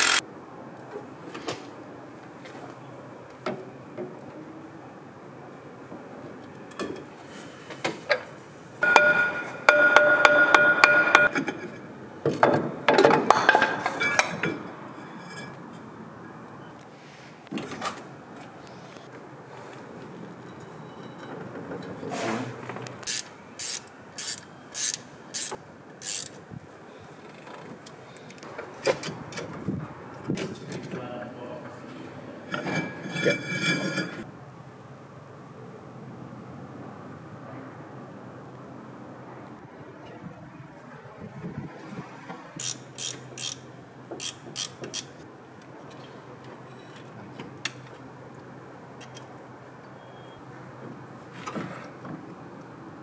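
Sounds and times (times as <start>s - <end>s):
tool scraping metal: 8.8s - 11.7s, 32.5s - 34.2s
socket ratchet clicking: 23.0s - 26.4s, 42.6s - 43.6s, 44.2s - 45.1s.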